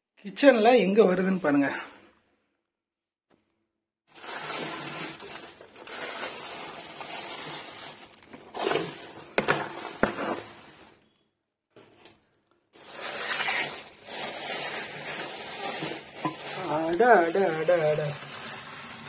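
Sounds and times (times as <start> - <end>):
plastic bags crinkling: 4.1 - 11.2, 11.8 - 19.0.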